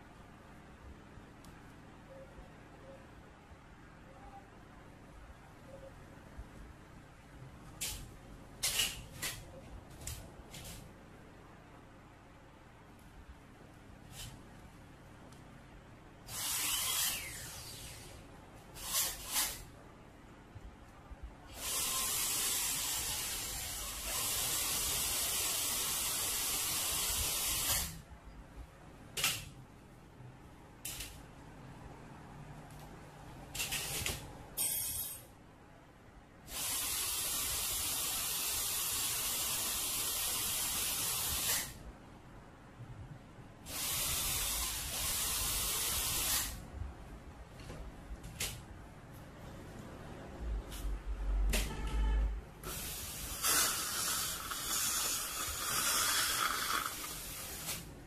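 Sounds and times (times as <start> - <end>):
dental drill hissing: 16.3 - 18.1, 18.8 - 19.6, 21.5 - 28.0, 36.5 - 41.8, 43.7 - 46.6, 52.7 - 57.8.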